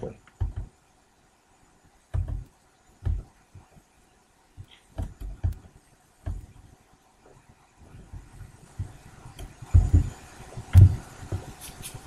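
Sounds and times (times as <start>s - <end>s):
soft low thumps: 0.0s - 0.8s, 2.1s - 3.9s, 4.5s - 11.6s.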